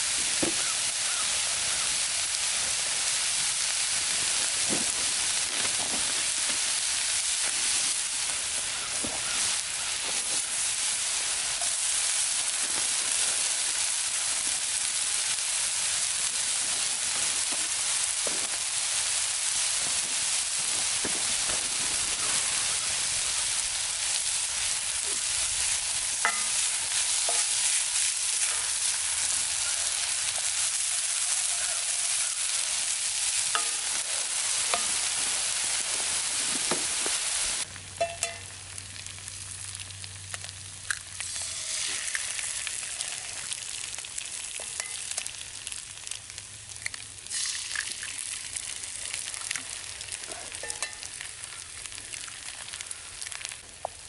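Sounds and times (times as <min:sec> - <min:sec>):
food sizzling in skillet: 0:00.0 - 0:54.0.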